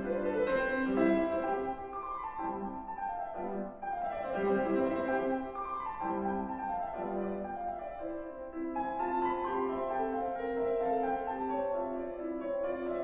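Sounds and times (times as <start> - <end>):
classical piano piece: 0.0 - 13.0.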